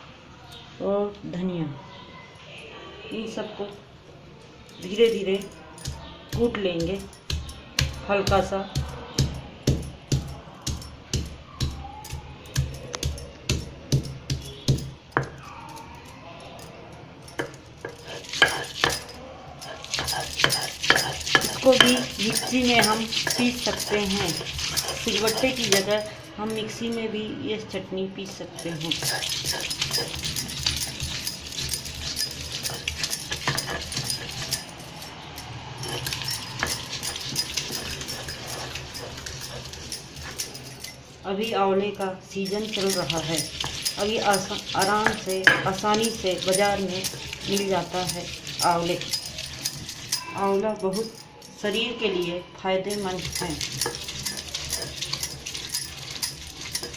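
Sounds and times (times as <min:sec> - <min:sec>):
faint music: 0:00.0 - 0:56.9
bangles clinking: 0:04.4 - 0:27.3, 0:28.2 - 0:56.9
stone pestle knocking on stone: 0:05.8 - 0:15.4, 0:19.7 - 0:25.9, 0:42.6 - 0:49.2
stone grinding on stone slab: 0:17.4 - 0:26.8, 0:28.6 - 0:34.8, 0:35.8 - 0:40.8, 0:42.4 - 0:50.3, 0:53.0 - 0:56.9.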